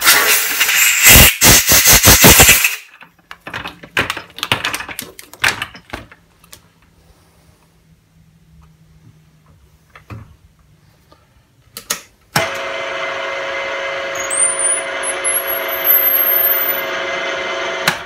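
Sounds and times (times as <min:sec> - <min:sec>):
milling machine motor whining: 0:13.0 - 0:18.0.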